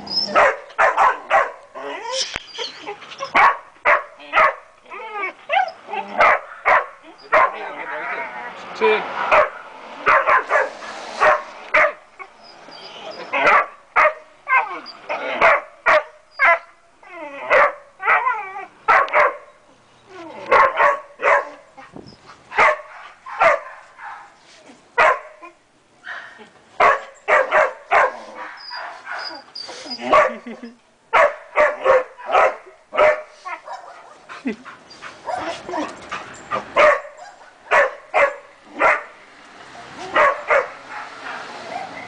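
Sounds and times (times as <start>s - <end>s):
dogs barking and yipping: 0.0s - 8.6s, 9.2s - 42.0s
whiny dog yelps: 10.1s - 19.4s, 25.0s - 30.4s, 35.0s - 39.0s, 39.8s - 42.0s.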